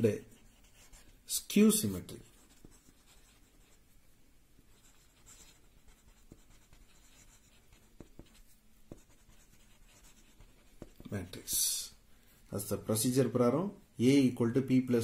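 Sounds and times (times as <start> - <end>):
marker scratching on paper: 0.0 - 3.8, 4.6 - 11.7.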